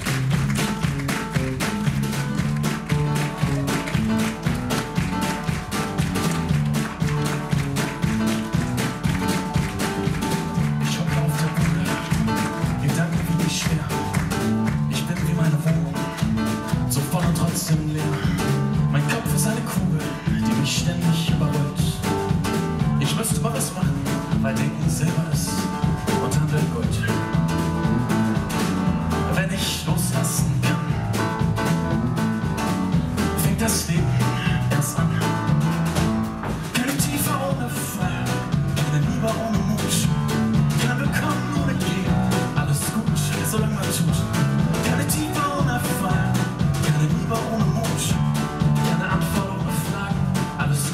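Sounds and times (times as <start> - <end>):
drum kit: 0.0 - 50.9
electric bass: 0.0 - 50.9
grand piano: 0.0 - 50.9.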